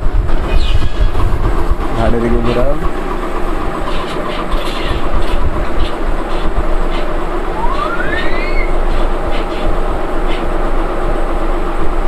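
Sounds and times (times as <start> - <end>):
low background rumble: 0.0 - 12.0
rising whistle-like tone: 7.6 - 8.8.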